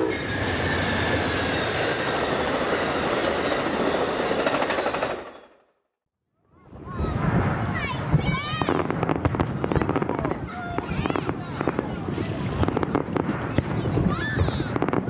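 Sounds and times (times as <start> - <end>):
wheels clacking on rails: 0.0 - 5.6
passenger train passing: 0.0 - 5.9.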